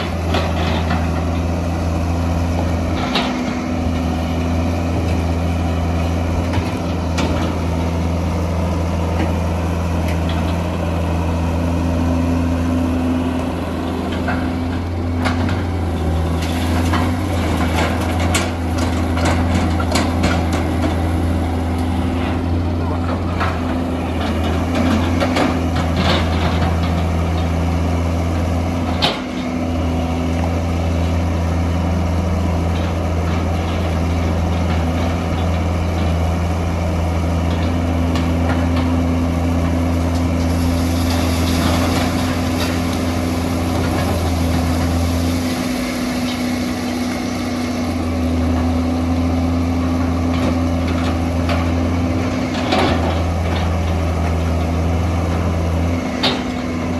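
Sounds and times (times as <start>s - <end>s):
excavator diesel engine running: 0.0s - 56.9s
hiss: 40.4s - 43.2s.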